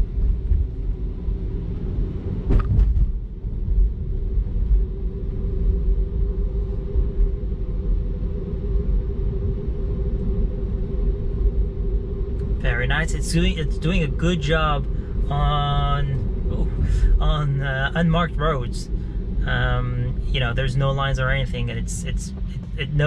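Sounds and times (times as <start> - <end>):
road and tyre rumble: 0.0 - 23.0
steady cabin hum: 0.0 - 23.0
brief knock: 2.5 - 3.1.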